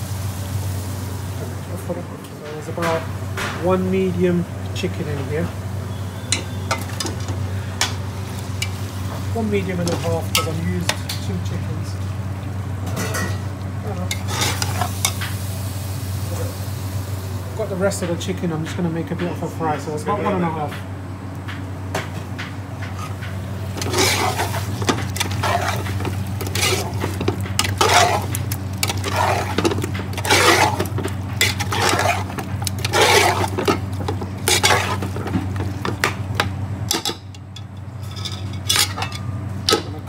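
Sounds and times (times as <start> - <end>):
steady low hum: 0.0 - 40.0
ladle stirring in steel pot: 14.1 - 15.2, 22.9 - 37.1.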